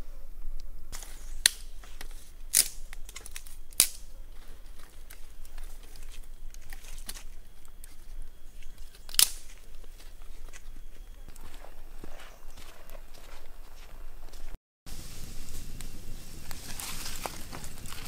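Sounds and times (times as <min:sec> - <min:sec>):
fire crackling: 0:00.4 - 0:12.0, 0:13.7 - 0:18.0
dry sticks snapping: 0:00.6 - 0:11.5.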